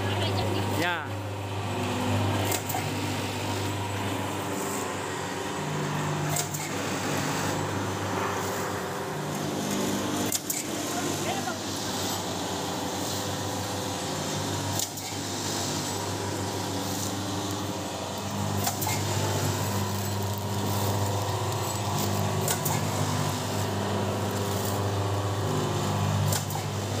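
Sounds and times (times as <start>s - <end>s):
packing machine humming: 0.0s - 27.0s.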